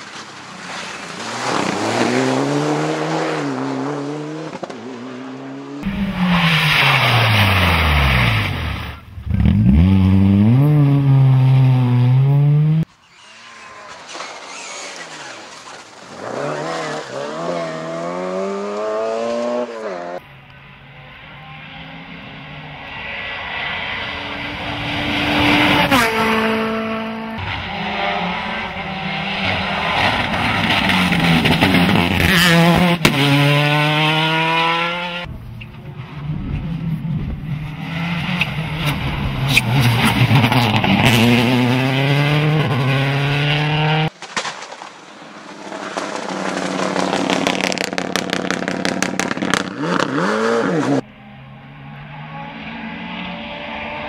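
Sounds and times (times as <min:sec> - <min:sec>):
rally cars passing at speed: 0:00.0 - 0:44.2, 0:44.8 - 0:54.0
engine crackles: 0:44.1 - 0:51.0.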